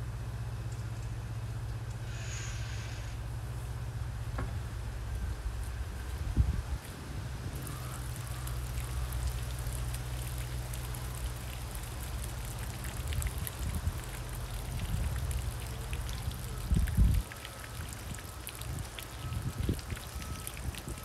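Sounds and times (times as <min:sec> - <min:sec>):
water trickling and dripping: 0:05.6 - 0:21.0.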